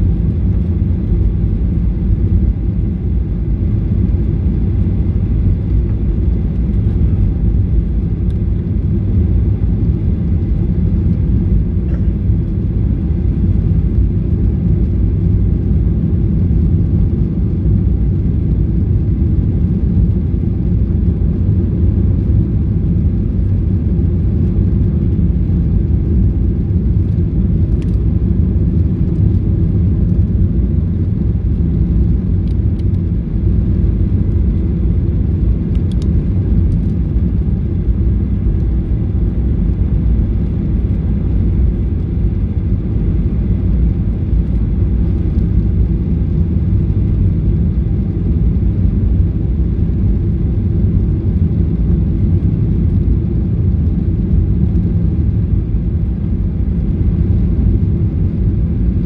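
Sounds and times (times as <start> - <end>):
airliner cabin rumble: 0.0 - 59.0.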